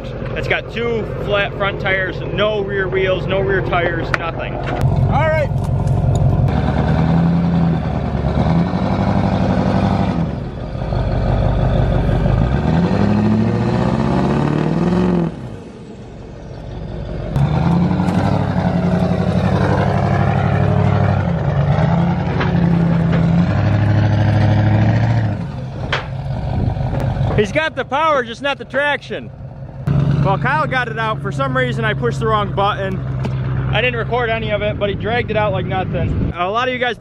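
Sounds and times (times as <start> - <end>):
tires spinning: 0.0 - 36.3
diesel engine revving hard: 4.8 - 27.8, 29.8 - 34.6.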